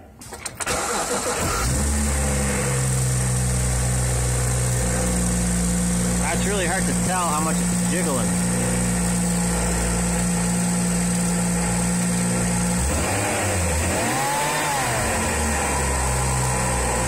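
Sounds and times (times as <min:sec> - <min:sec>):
car engine idling: 0:00.8 - 0:17.0
rising and falling tone: 0:12.9 - 0:17.0.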